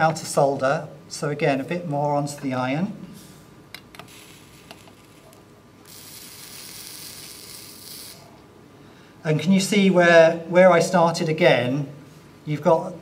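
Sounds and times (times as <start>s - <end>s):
solder flux sizzling: 3.9s - 8.4s.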